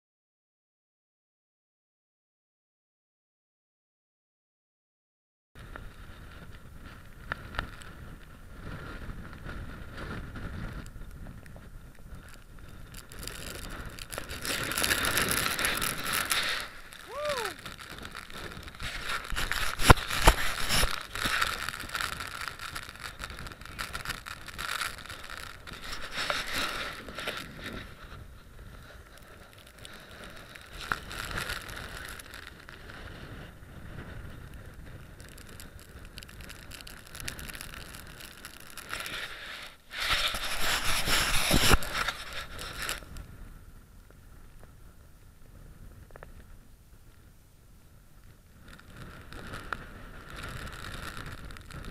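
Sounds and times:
gusty wind buffeting microphone: 5.6s - 29.5s.

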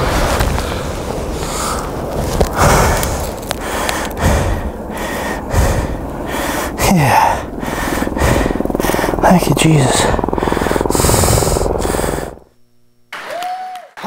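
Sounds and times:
man breathing hard and gasping: 1.4s - 9.2s, 10.2s - 12.4s.

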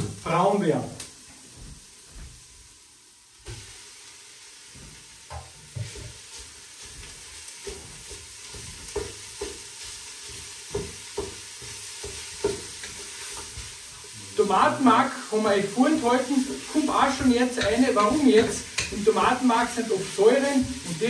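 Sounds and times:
meat sizzling in a pot: 0.0s - 21.0s
spoon knocking against pot: 17.2s - 19.0s.

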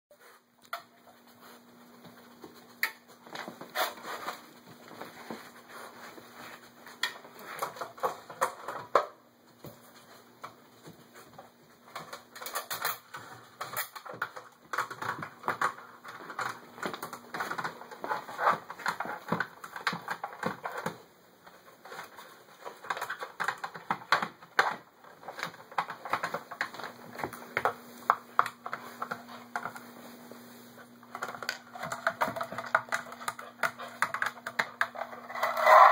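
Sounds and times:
plastic dog puzzle clattering: 31.1s - 35.9s
plastic toy sliding across tile: 35.0s - 35.9s.

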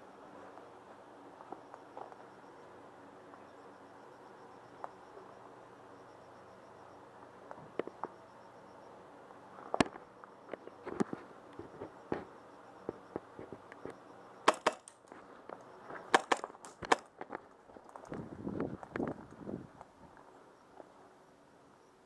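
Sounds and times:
airsoft gun shots: 14.4s - 14.9s, 16.1s - 17.1s.

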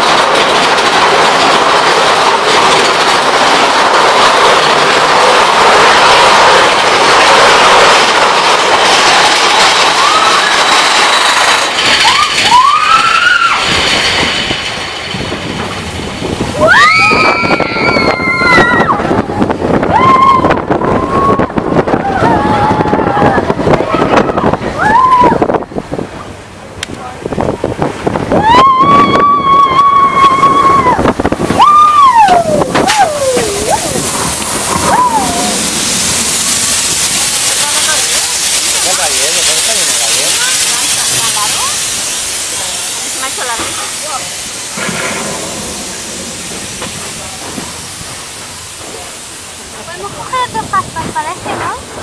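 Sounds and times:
roller coaster cars rattling: 0.0s - 52.0s
riders whooping: 9.8s - 13.9s, 16.5s - 19.1s, 19.8s - 25.5s, 28.3s - 36.3s
person whooping: 31.6s - 34.0s, 34.8s - 35.6s.

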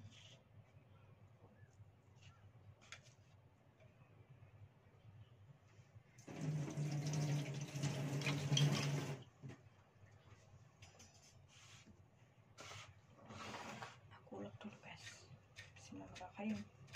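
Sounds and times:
tap running into sink: 6.3s - 9.2s.

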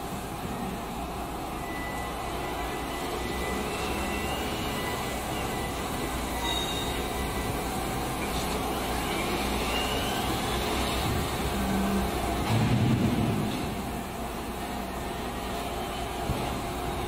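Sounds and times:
wheel loader mechanical rumble: 0.0s - 17.0s
thin high whine: 1.5s - 12.1s.

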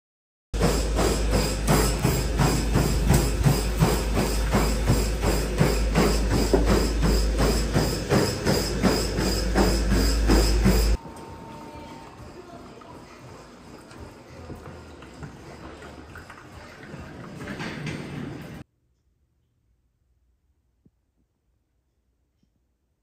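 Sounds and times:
steady low hum: 0.6s - 11.8s.

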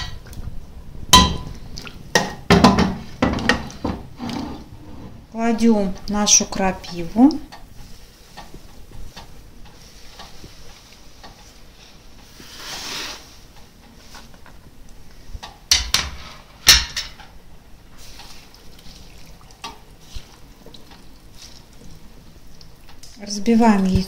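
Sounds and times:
sharp knocks on cookware: 1.2s - 1.5s, 2.2s - 4.0s, 15.7s - 17.2s.

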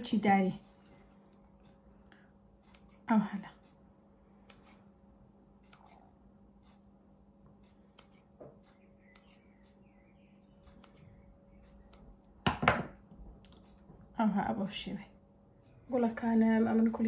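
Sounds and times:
scissors snipping dough: 5.6s - 6.1s, 7.7s - 8.4s, 10.7s - 12.2s.

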